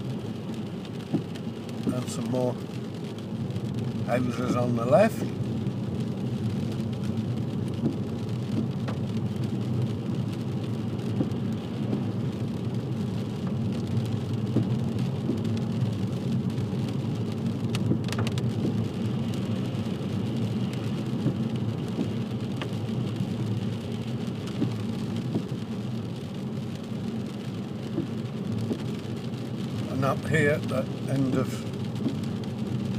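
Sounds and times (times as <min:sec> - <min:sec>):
engine and tyre rumble: 0:00.0 - 0:32.9
tyres hissing on wet road: 0:00.0 - 0:32.9.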